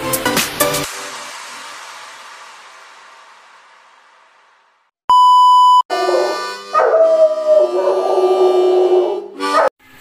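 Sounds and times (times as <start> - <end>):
electronic beep: 5.1 - 5.9
dog howling: 5.9 - 9.7.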